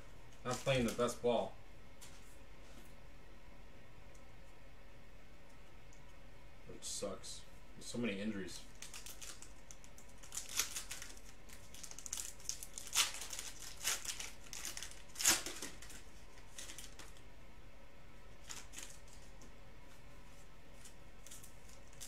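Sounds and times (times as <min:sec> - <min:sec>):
plastic wrappers tearing and crinkling: 0:00.4 - 0:01.2, 0:08.6 - 0:17.2, 0:18.4 - 0:19.3, 0:20.8 - 0:22.0.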